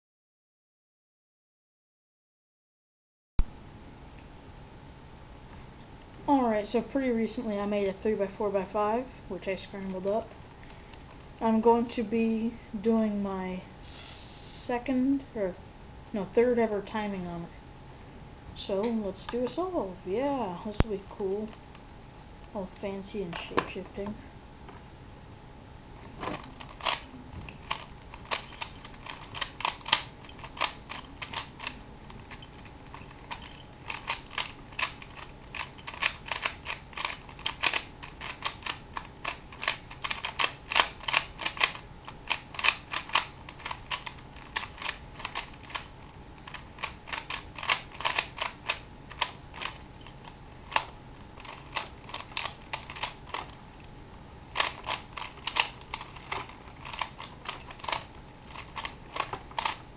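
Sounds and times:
plastic puzzle clicking: 26.2 - 53.6, 54.5 - 59.8.

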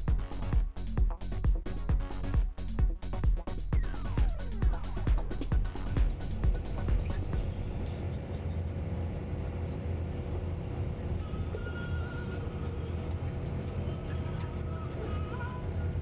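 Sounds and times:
vehicle road and engine rumble: 4.4 - 16.0.

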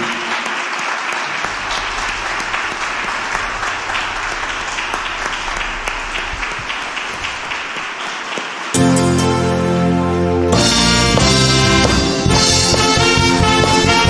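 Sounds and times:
crowd clapping: 0.0 - 9.4.

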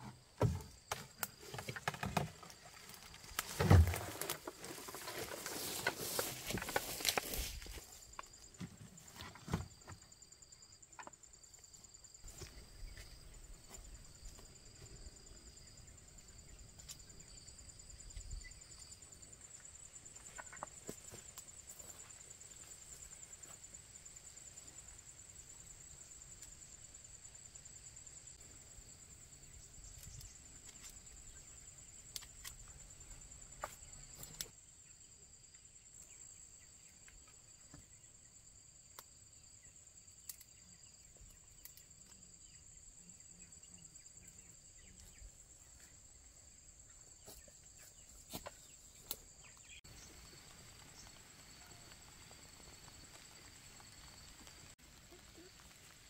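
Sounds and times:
insects chirring: 0.0 - 56.0
insect trilling: 49.0 - 56.0.

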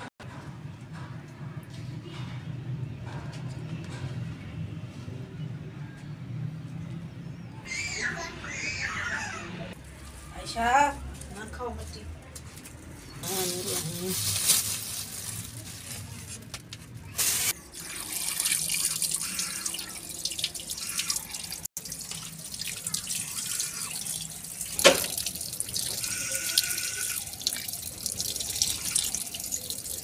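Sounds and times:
tap water splashing: 17.8 - 23.4, 24.0 - 30.0.

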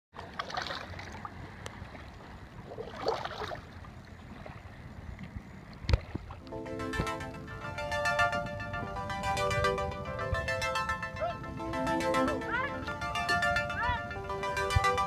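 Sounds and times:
paddle strokes splashing: 0.2 - 7.2
wind rumble on microphone: 0.3 - 15.0.

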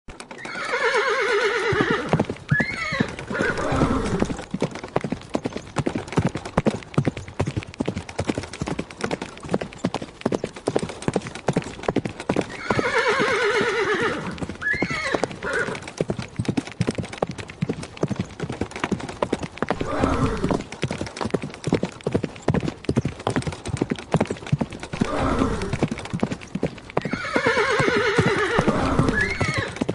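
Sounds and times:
hooves galloping: 0.1 - 29.9
horse whinnying: 0.3 - 4.4, 12.5 - 15.9, 19.7 - 20.7, 24.9 - 25.9, 27.0 - 29.9.

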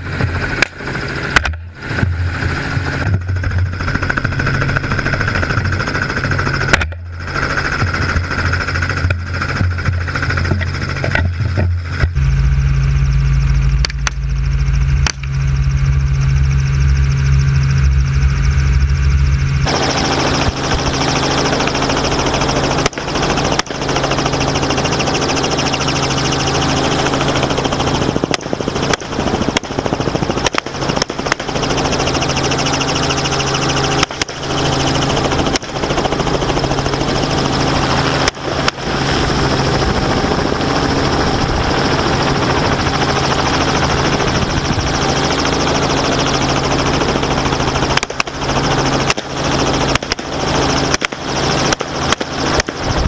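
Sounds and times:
helicopter engine and rotor: 0.0 - 53.0
wind rushing: 37.0 - 47.6.

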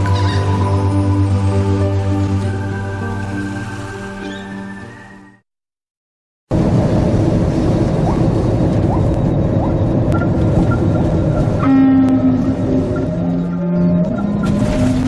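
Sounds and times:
music: 0.0 - 5.5
road and wind noise inside vehicle: 6.5 - 15.0.

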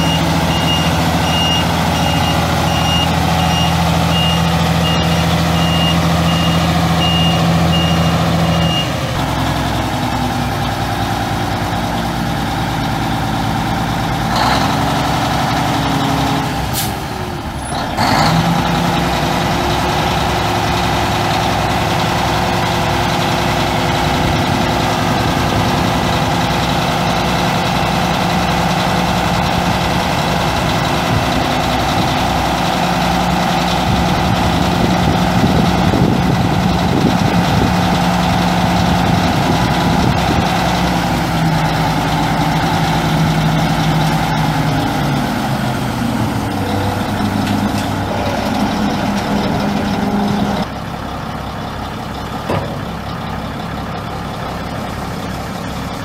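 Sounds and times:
reverse alarm beeping: 0.0 - 9.0
diesel truck engine running: 0.0 - 56.0.

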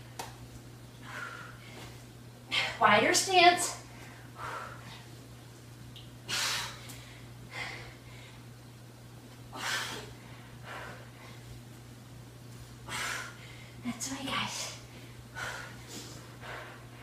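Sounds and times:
woman breathing hard: 1.0 - 2.8, 3.9 - 5.2, 6.3 - 8.5, 9.5 - 11.6, 12.8 - 13.8, 14.8 - 17.0.

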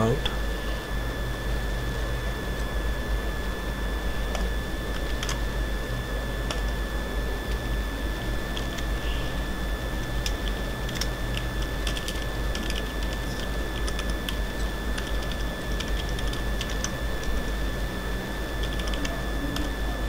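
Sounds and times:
electrical hum: 0.0 - 20.0
keyboard typing: 4.3 - 5.4, 6.4 - 6.8, 8.5 - 9.0, 10.2 - 17.5, 18.6 - 19.8.

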